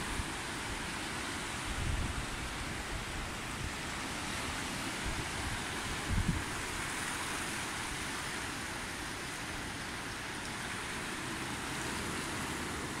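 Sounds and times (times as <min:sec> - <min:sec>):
floodwater rushing: 0:00.0 - 0:13.0.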